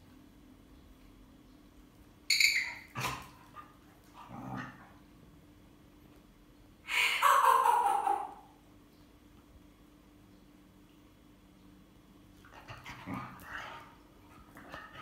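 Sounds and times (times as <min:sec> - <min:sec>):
dog yipping: 0:02.3 - 0:03.1.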